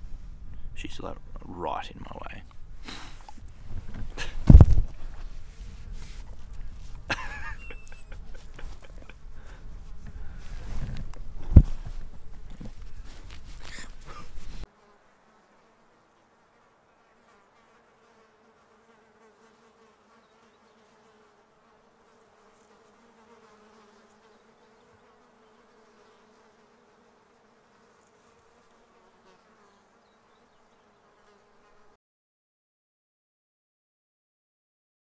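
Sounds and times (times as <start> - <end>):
outdoor hiss: 0.0 - 17.6
flying insect buzzing: 6.3 - 32.0.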